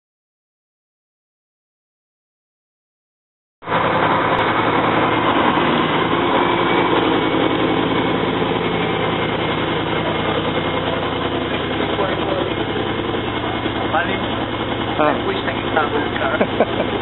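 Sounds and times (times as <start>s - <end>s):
sports car engine idling: 3.7s - 17.0s.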